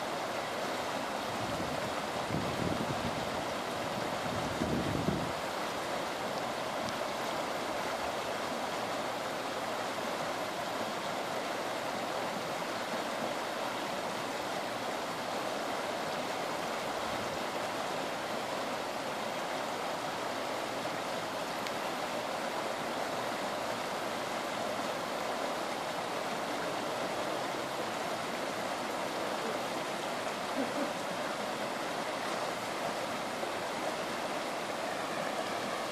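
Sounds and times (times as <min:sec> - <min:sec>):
floodwater rushing: 0:00.0 - 0:35.9.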